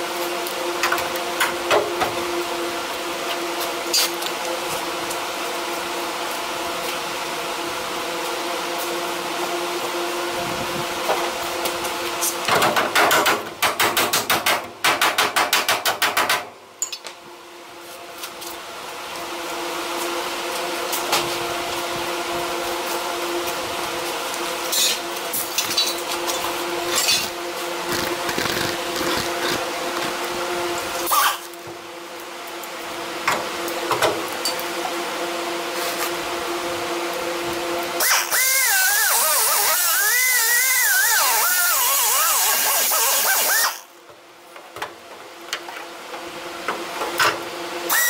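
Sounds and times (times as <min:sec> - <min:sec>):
hammering on sheet steel: 0:12.5 - 0:16.5
steady hum: 0:16.4 - 0:40.6.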